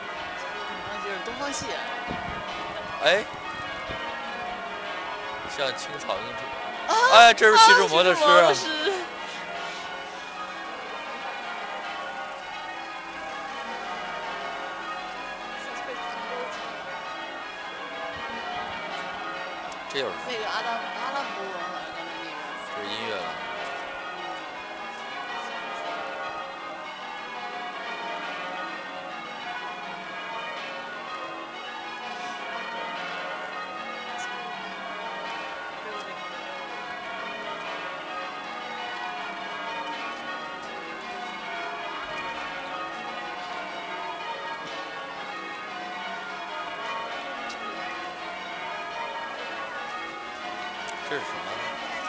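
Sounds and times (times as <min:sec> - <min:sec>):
church bells pealing: 0:00.0 - 0:52.0.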